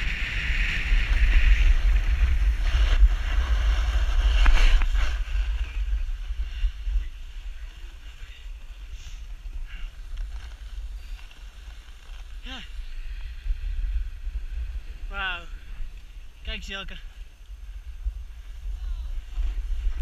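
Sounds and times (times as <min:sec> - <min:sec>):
wind noise on microphone: 0:00.0 - 0:20.0
skis hissing over snow: 0:00.2 - 0:14.8.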